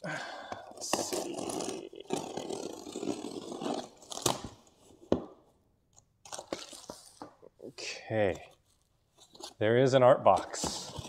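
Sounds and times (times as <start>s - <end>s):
cardboard scraping and tearing: 0.7s - 4.7s.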